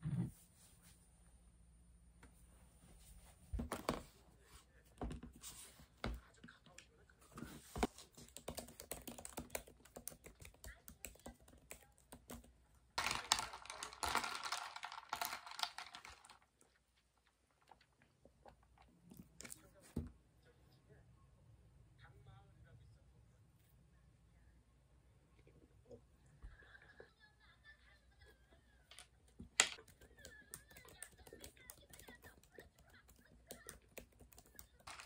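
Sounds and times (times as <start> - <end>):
typing on a laptop keyboard: 8.1 - 16.3, 29.8 - 35.0
ice rattling in a glass: 13.0 - 16.4.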